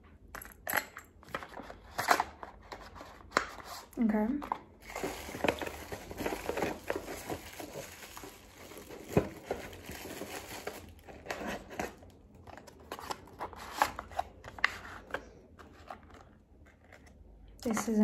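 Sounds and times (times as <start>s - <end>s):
jewelry rummaged in box: 4.8s - 13.5s.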